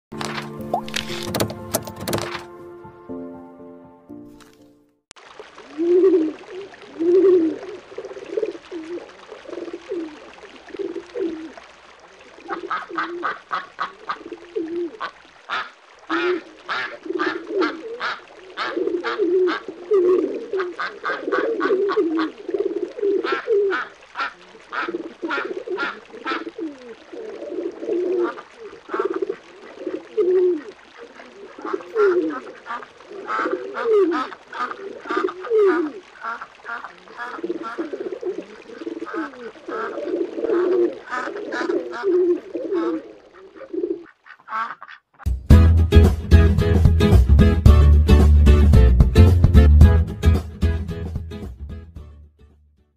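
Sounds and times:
pigeons cooing: 5.7s - 11.7s, 12.4s - 44.9s
ducks quacking: 12.4s - 14.4s, 15.0s - 19.7s, 20.5s - 22.4s, 23.2s - 26.6s, 31.5s - 38.0s, 39.0s - 45.3s.

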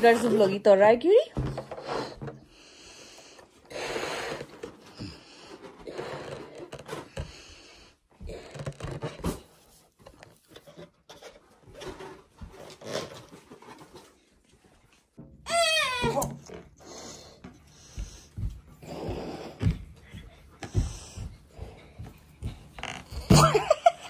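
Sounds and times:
breaths blowing up a balloon: 1.4s - 9.9s, 12.5s - 13.6s, 15.6s - 23.6s.

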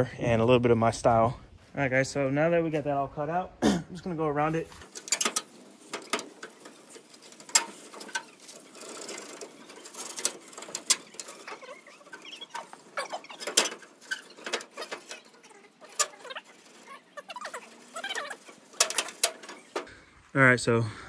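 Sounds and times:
scraping: 4.0s - 20.0s.

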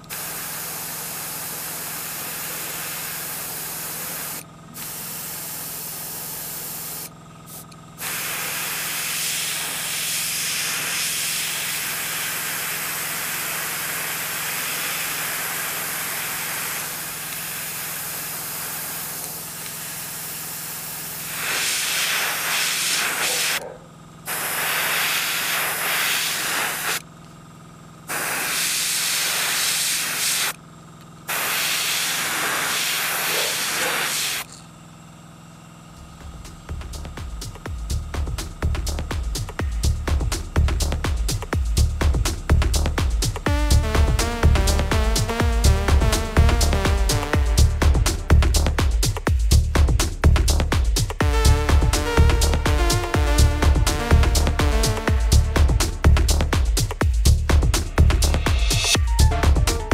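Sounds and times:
airbrush spraying hiss: 0.0s - 23.6s, 24.3s - 27.0s, 28.1s - 30.6s, 31.3s - 34.5s, 36.9s - 59.9s
low hum: 36.0s - 59.9s.

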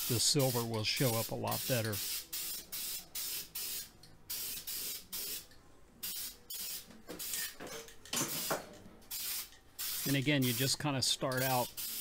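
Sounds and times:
aerosol spray can hissing: 0.0s - 5.4s, 9.1s - 10.8s, 11.4s - 12.0s.

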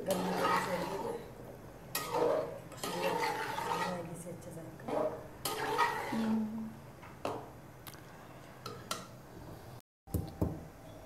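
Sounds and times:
metal spoon scraping metal pot: 0.0s - 1.3s, 1.9s - 4.1s, 4.9s - 6.4s.

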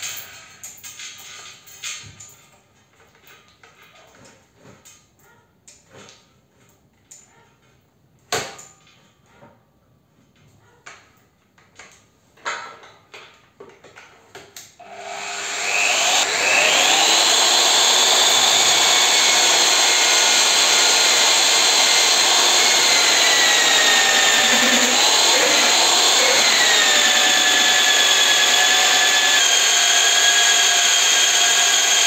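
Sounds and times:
cutter boring into steel: 14.8s - 32.0s
drill press motor whining: 14.8s - 32.0s.

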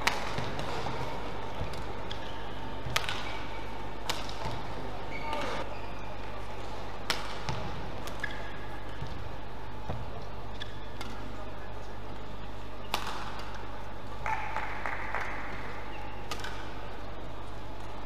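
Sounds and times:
racket hitting shuttlecock: 0.0s - 5.6s, 7.0s - 9.2s, 9.9s - 11.4s, 12.8s - 13.6s, 14.2s - 16.8s.

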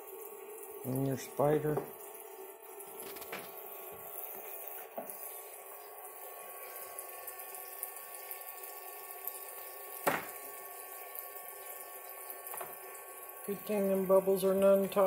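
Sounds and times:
faucet running water: 0.0s - 15.0s.

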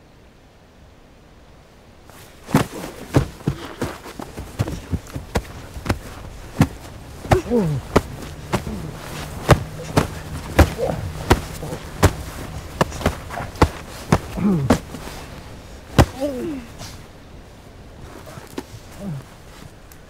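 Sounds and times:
fists thudding on padded jacket: 2.2s - 17.0s
boy crying out: 16.1s - 16.8s.

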